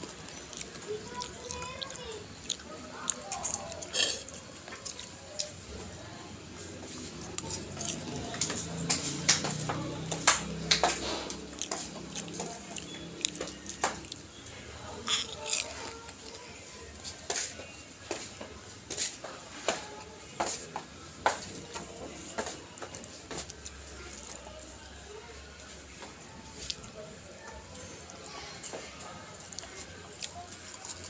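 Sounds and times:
popcorn rustling in glass bowl: 0:14.8 - 0:17.6, 0:28.4 - 0:31.0.

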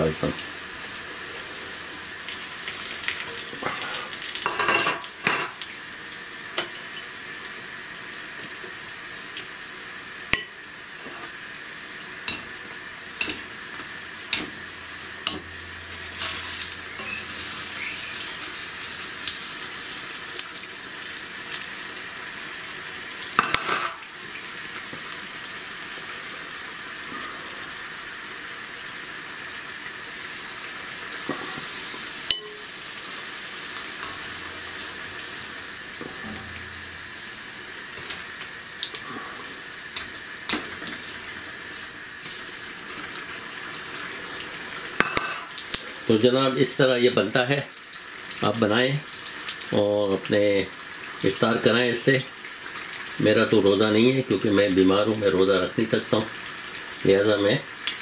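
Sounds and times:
oil sizzling in a wok: 0:00.0 - 0:58.0
skimmer scraping metal wok: 0:14.3 - 0:18.4, 0:35.9 - 0:37.4.

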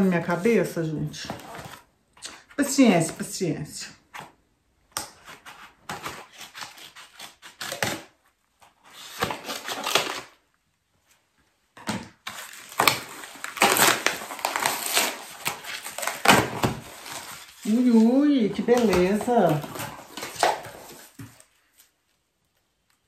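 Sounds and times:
paper tearing and crackling: 0:05.3 - 0:10.5, 0:12.2 - 0:21.9
plastic wrap crinkling: 0:12.2 - 0:23.0.

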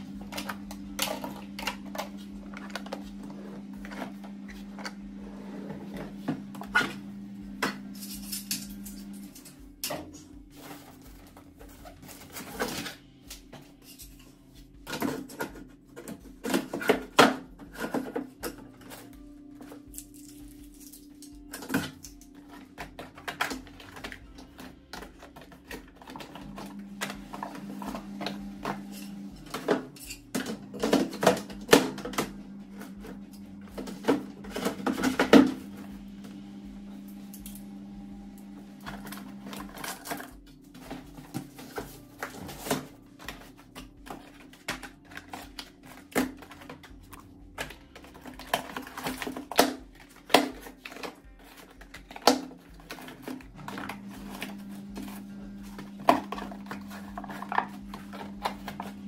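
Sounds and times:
boxes and bottles knocking in drawer: 0:14.9 - 0:19.1, 0:21.5 - 0:35.8.

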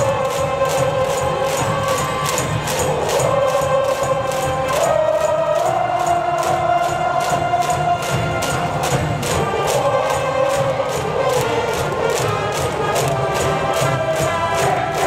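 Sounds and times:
crowd singing and chanting: 0:00.0 - 0:15.0
steady drum beat: 0:00.0 - 0:15.0
brass band playing: 0:07.4 - 0:15.0.

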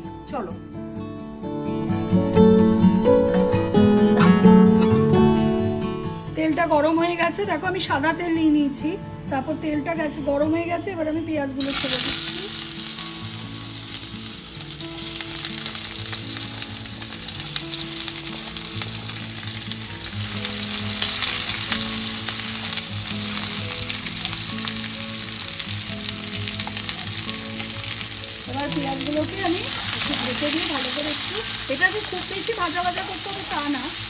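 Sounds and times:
onions sizzling in oil: 0:11.6 - 0:34.0.

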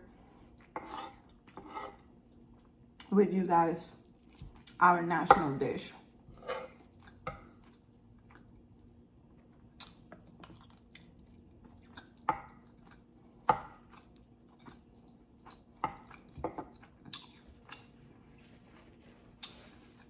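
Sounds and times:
chewing and mouth clicks: 0:06.8 - 0:18.0, 0:19.4 - 0:20.0
paper napkin rustling: 0:18.0 - 0:20.0.

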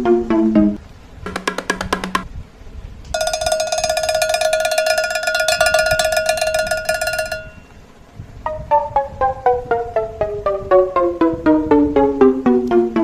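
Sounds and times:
plucked background music: 0:00.0 - 0:02.3, 0:08.5 - 0:13.0
rapidly pulsing bell-like tone: 0:03.2 - 0:07.8.

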